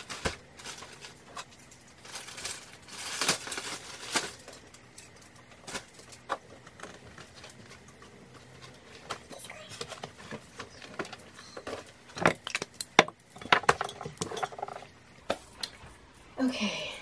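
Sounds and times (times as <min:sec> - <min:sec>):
rustling: 0:00.0 - 0:12.2.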